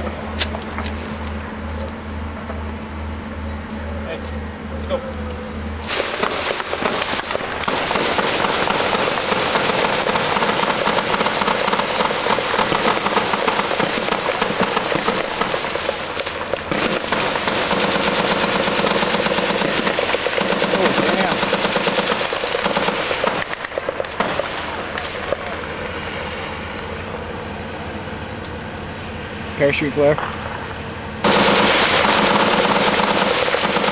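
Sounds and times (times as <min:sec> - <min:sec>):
automatic gunfire: 0:05.9 - 0:25.6, 0:31.2 - 0:33.9.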